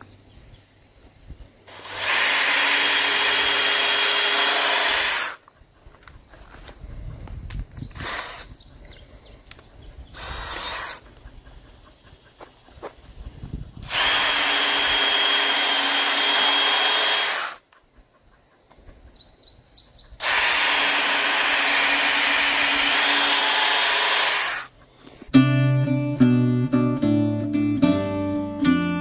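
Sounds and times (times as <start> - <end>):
power drill boring into timber: 1.7 - 5.4, 7.9 - 8.5, 10.2 - 11.0, 13.8 - 17.6, 20.2 - 24.7
acoustic guitar music: 25.3 - 29.0.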